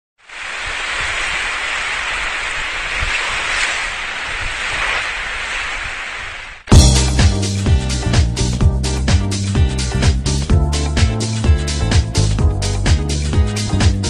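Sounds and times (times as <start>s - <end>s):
steady rushing noise: 0.2s - 7.7s.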